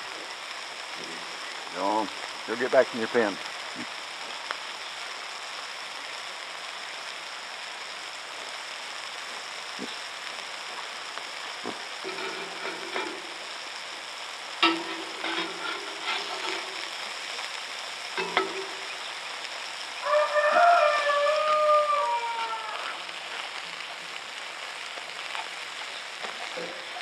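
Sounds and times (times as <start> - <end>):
sausage sizzling in frying pan: 0.0 - 27.0
metal spatula scraping pan: 12.0 - 13.6, 14.6 - 17.0, 18.2 - 19.1.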